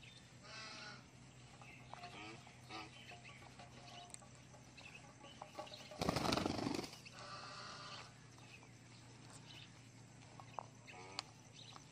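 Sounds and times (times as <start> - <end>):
parrot wings flapping: 5.9 - 7.0.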